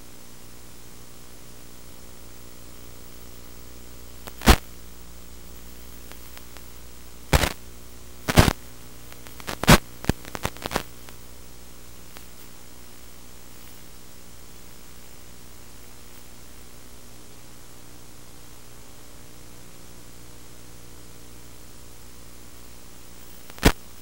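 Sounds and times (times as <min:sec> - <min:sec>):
static hiss and hum: 0:00.0 - 0:24.0
crackling pops: 0:04.2 - 0:04.7, 0:05.9 - 0:11.2, 0:12.1 - 0:12.6, 0:23.3 - 0:24.0.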